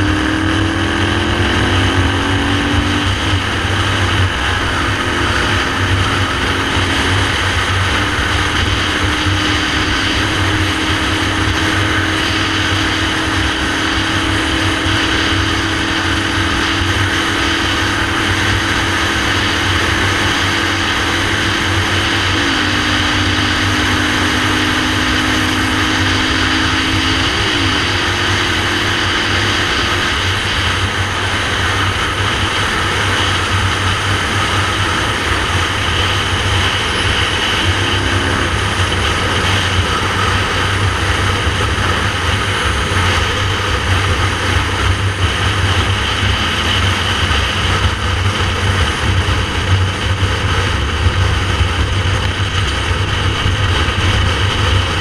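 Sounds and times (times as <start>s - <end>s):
motorcycle engine running: 0.0s - 55.0s
wind rush on microphone: 0.0s - 55.0s.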